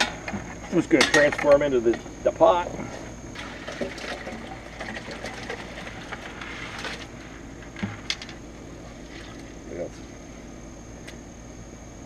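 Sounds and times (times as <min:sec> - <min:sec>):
water sloshing: 0:03.4 - 0:07.2, 0:08.8 - 0:09.6.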